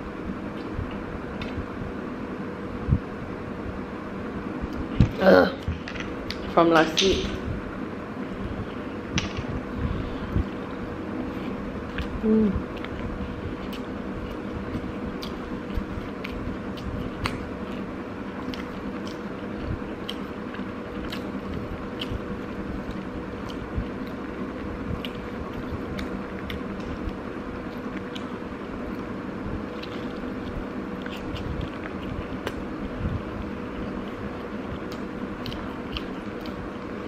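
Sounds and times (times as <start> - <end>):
background hum: 0.0 - 37.0
person chewing: 10.4 - 37.0.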